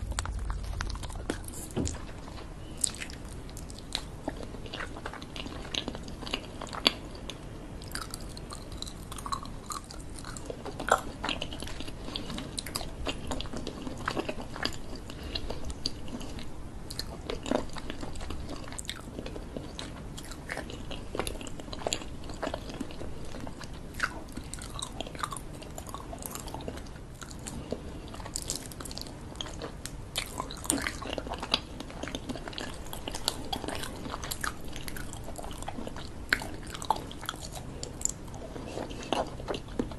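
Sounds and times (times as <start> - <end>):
chewing and biting sweets: 0.0 - 39.9.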